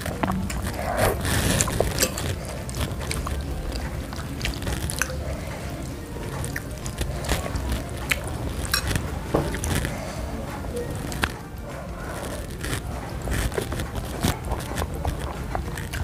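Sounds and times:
wet chewing: 0.0 - 16.0
cutlery clicking on plate: 1.6 - 2.9, 8.7 - 9.9.

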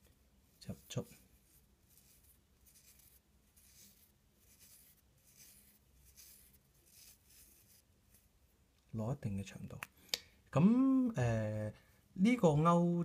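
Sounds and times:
fibres rustling between fingertips: 0.0 - 9.0.

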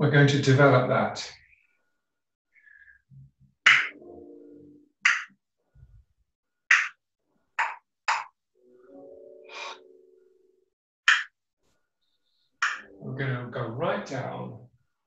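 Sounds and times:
man making breathy hisses: 9.5 - 9.8.

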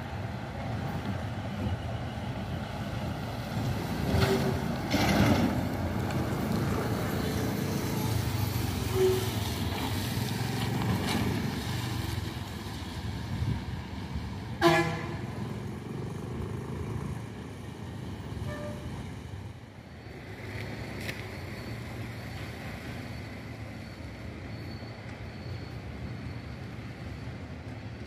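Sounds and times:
bus engine rumbling: 0.0 - 28.0.

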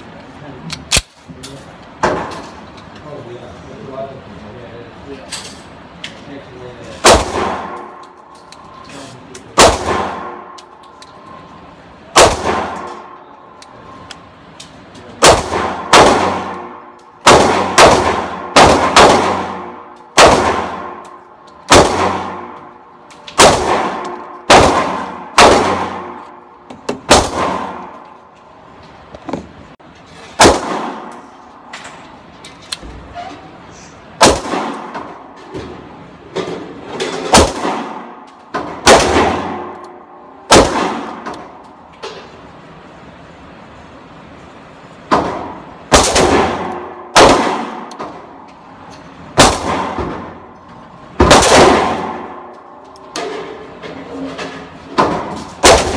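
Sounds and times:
pistol shots ringing indoors: 7.0 - 8.8, 9.5 - 11.5, 12.1 - 14.5, 15.2 - 28.2, 30.4 - 31.7, 34.2 - 35.8, 37.2 - 41.9, 45.1 - 53.4, 54.9 - 55.9.

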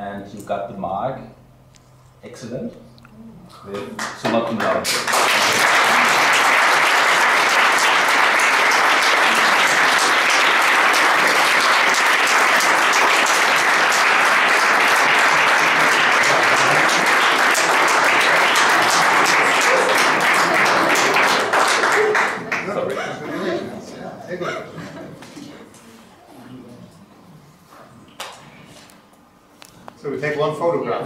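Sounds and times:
audience applauding: 3.8 - 23.0.

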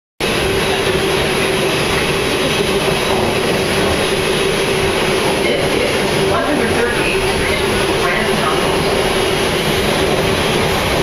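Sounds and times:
subway train rumbling and rattling: 0.2 - 11.0.

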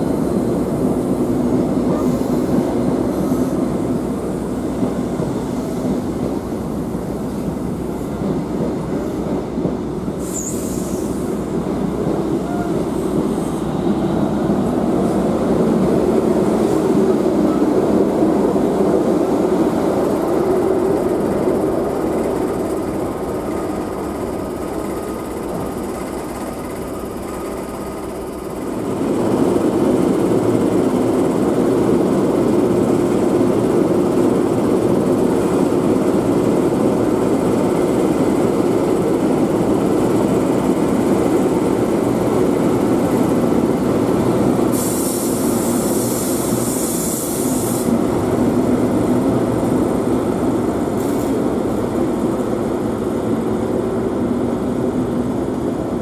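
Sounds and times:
train rumbling on rails: 0.0 - 56.0
high hiss: 10.2 - 11.5, 44.6 - 48.0.

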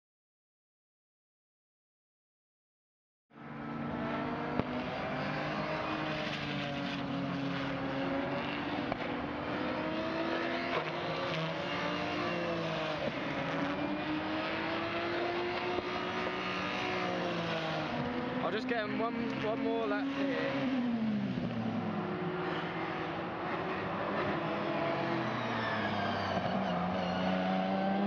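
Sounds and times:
race car engine running hard: 3.6 - 25.0.

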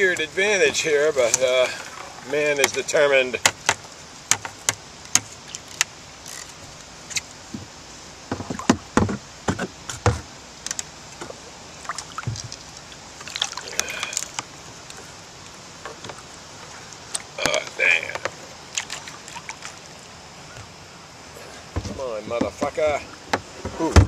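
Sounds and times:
knocks and thumps against kayak: 7.5 - 7.7, 8.3 - 10.3, 12.2 - 12.6, 15.8 - 16.7, 21.7 - 24.0.

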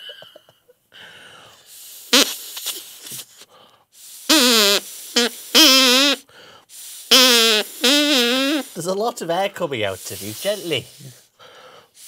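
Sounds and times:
straw oboe buzzy honks: 4.3 - 6.2, 7.1 - 8.6.

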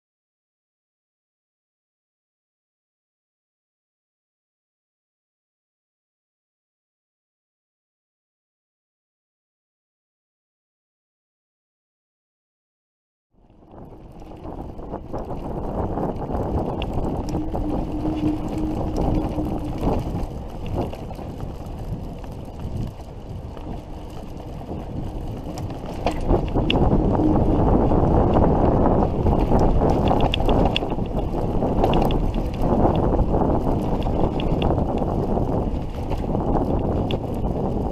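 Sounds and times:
bicycle tyre noise: 13.4 - 37.9
wind rushing over microphone: 13.4 - 37.9
small rattling clicks: 29.4 - 33.0.

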